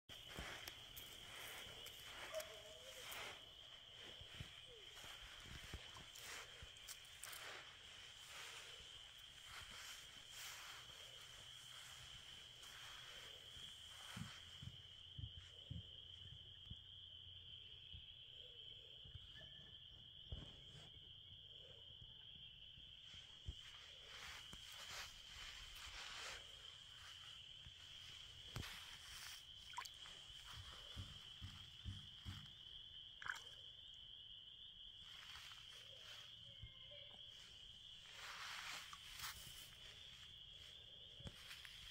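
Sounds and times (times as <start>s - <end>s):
frogs calling: 0.1s - 20.4s, 21.3s - 41.9s
soft splashes in shallow water: 28.5s - 31.1s, 33.2s - 33.8s.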